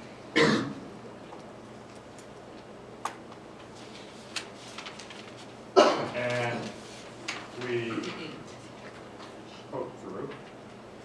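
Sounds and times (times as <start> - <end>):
paper rustling: 3.3 - 9.4, 10.0 - 10.8.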